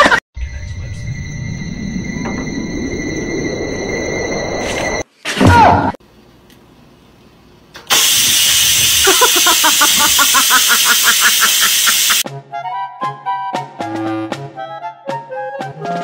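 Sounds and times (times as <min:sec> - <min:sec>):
rice cooker venting steam: 0:07.8 - 0:12.2.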